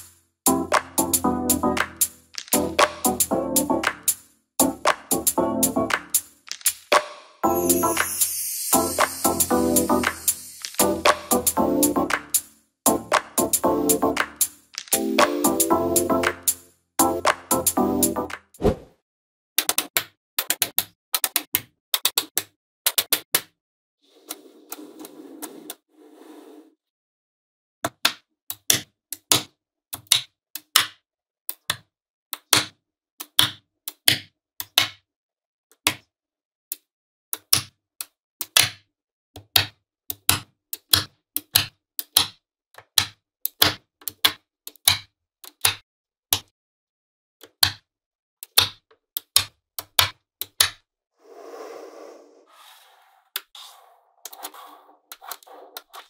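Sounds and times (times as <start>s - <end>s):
magnetic balls clicking together: 1.8s - 4.2s, 5.9s - 7.1s, 9.0s - 12.5s, 14.1s - 16.6s
balls rubbing softly: 24.1s - 26.7s, 51.2s - 56.0s.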